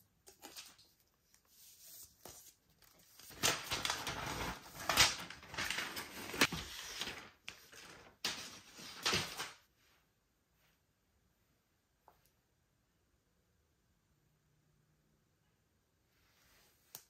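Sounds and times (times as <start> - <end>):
plastic wrap rustling and crinkling: 3.0 - 9.6.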